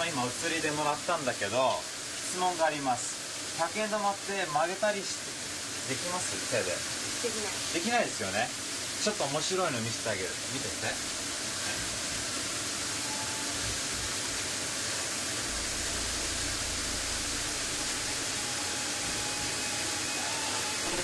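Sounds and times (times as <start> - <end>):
hiss-like background noise: 0.0 - 21.0
low rumble: 15.2 - 18.3.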